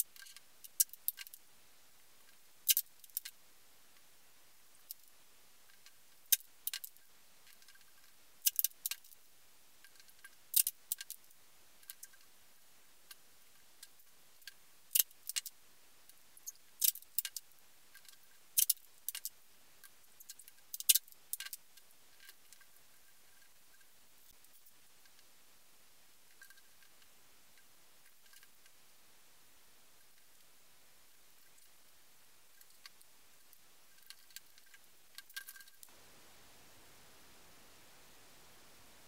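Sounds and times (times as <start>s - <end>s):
aluminium tape clicking and crinkling: 5.7s - 9.2s, 16.8s - 22.7s.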